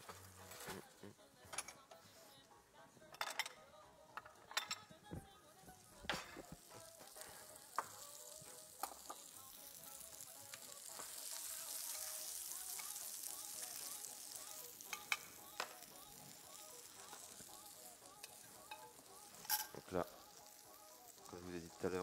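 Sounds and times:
mushrooms sizzling in butter: 5.7s - 22.0s.

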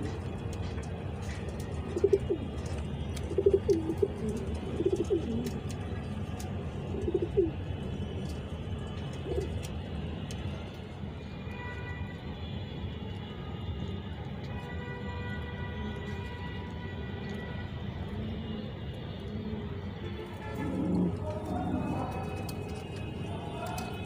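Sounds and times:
pigeon cooing: 1.9s - 2.4s, 3.3s - 5.6s, 7.0s - 7.6s, 20.5s - 22.8s.

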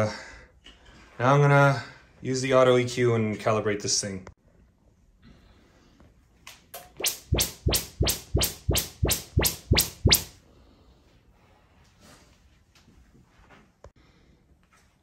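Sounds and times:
short sweeping test chirps: 7.0s - 10.3s.

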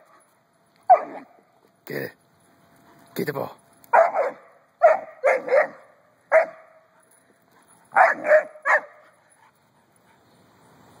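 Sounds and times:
puppy barking: 0.9s - 1.4s, 3.9s - 6.8s, 7.9s - 9.1s.

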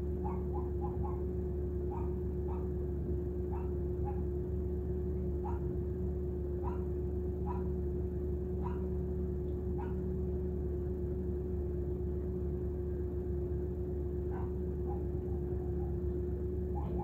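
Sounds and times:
car cabin low hum: 0.0s - 17.0s
dog barking in distance: 0.2s - 2.8s, 3.5s - 4.4s, 5.2s - 5.8s, 6.6s - 7.8s, 8.6s - 9.1s, 9.7s - 10.2s, 14.2s - 17.0s.

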